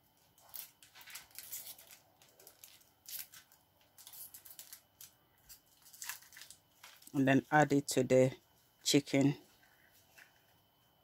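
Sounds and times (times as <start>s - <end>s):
foil wrapper crinkling: 0.4s - 7.5s.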